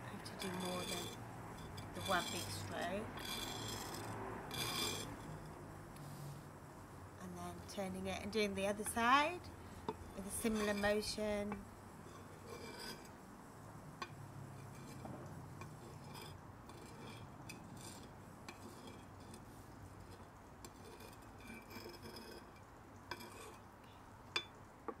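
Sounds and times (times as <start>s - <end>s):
blade scraping on whetstone: 0.1s - 5.6s, 9.9s - 13.2s, 14.6s - 19.4s, 20.1s - 23.6s.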